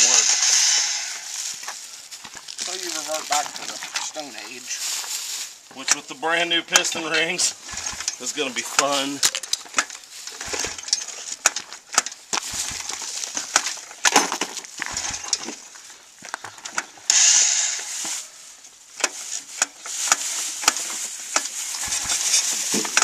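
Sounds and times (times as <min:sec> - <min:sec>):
engine recoil starter pulled: 0:00.0 - 0:01.4, 0:05.8 - 0:15.8, 0:16.4 - 0:18.2, 0:19.0 - 0:23.0
loud hissing rush: 0:00.0 - 0:01.6, 0:17.1 - 0:18.4
scrapes and knocks: 0:19.0 - 0:23.0.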